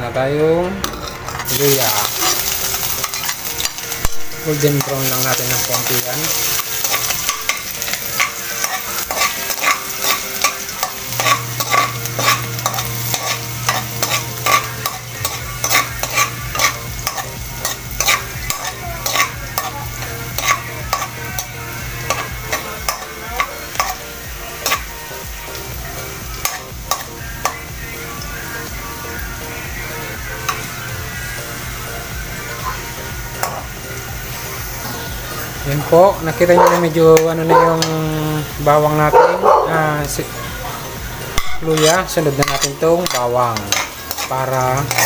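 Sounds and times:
metal spatula scraping a wok: 0.8 - 23.1, 41.4 - 45.0
ginger sizzling in hot oil: 1.3 - 45.0.

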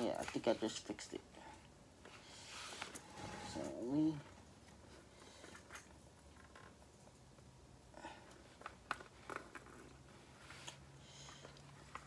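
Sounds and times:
small clicks and knocks on helmet: 8.3 - 10.0.

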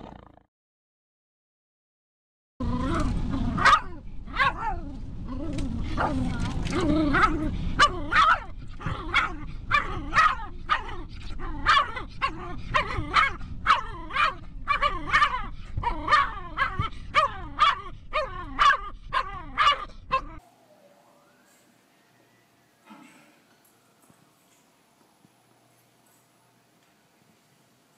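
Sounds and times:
car road rumble: 2.6 - 18.6
dog barking: 3.6 - 4.8, 7.2 - 20.4.

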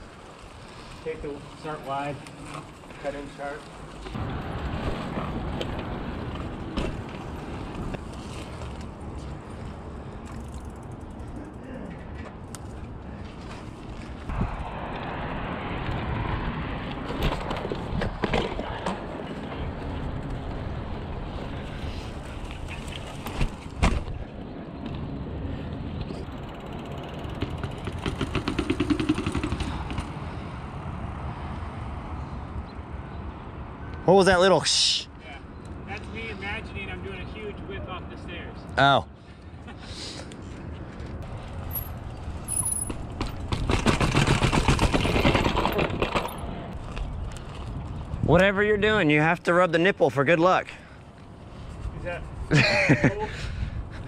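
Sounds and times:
bike clattering down stairs: 26.4 - 30.2, 42.5 - 46.4.

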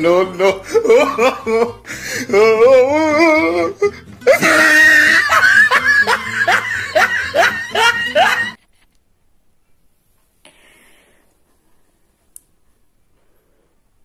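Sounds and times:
person laughing loudly: 0.1 - 8.6.

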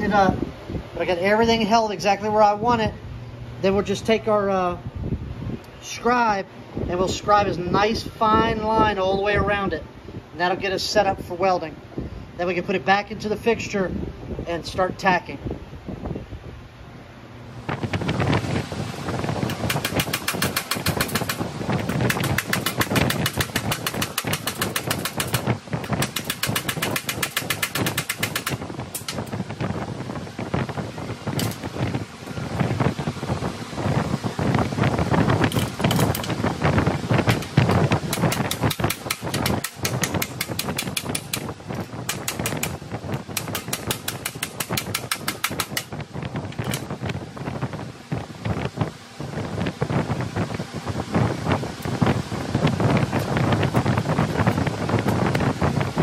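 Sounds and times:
low mechanical rumble: 0.0 - 56.0
rapid metallic strokes on steel: 19.5 - 29.3
rapid metal tapping: 19.5 - 29.4, 31.3 - 31.7, 35.5 - 36.4, 37.1 - 46.0.

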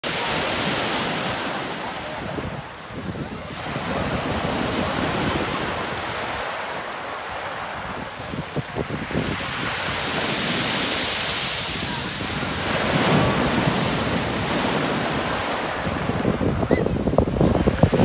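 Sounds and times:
waves washing over pebble beach: 0.0 - 18.0.

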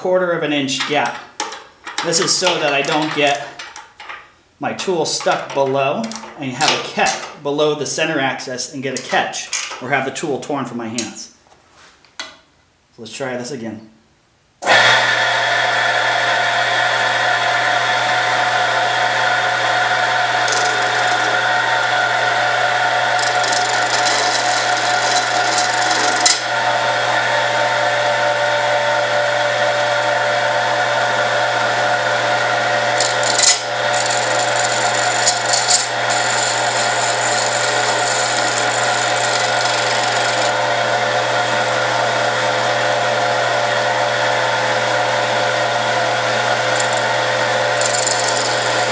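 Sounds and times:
lathe motor humming: 16.8 - 28.1, 28.7 - 48.9
turning tool scraping: 20.3 - 21.7, 23.0 - 26.5, 32.9 - 40.6, 46.2 - 48.9.

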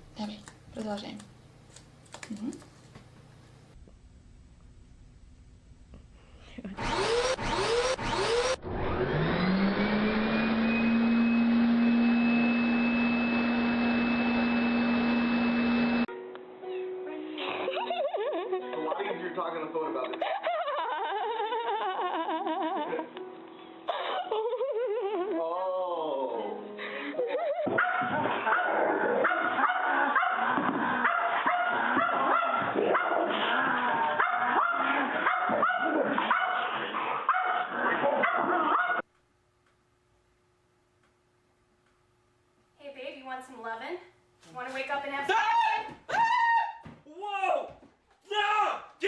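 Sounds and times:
vacuum cleaner motor whining: 6.8 - 16.1
dogs barking and yipping: 27.7 - 39.0.

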